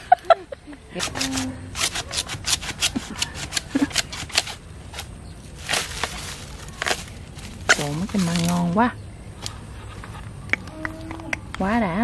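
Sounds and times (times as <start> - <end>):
dry leaves crackling and snapping: 3.5 - 8.9.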